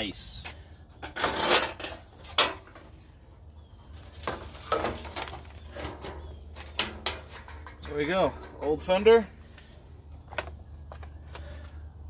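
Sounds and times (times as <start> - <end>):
panels scraping and knocking: 1.0 - 3.0, 4.0 - 8.4.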